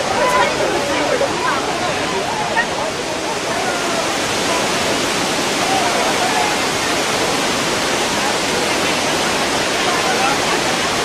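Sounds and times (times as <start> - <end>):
waterfall rushing: 0.0 - 11.0.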